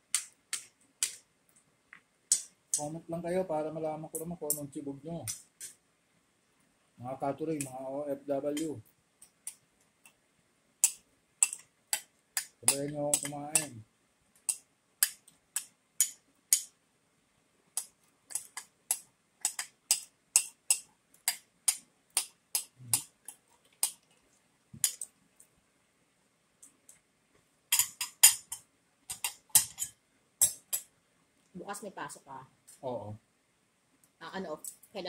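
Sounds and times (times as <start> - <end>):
cutlery clicking on ceramic plate: 10.8 - 13.7, 17.8 - 23.1, 27.7 - 30.9.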